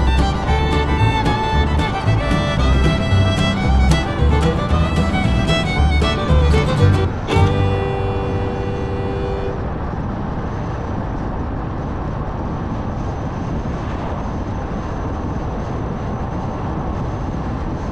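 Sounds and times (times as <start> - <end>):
car tyre and wind noise: 0.0 - 5.8, 6.8 - 17.9
music cue held notes: 0.0 - 9.7
thin high whine: 6.6 - 10.4.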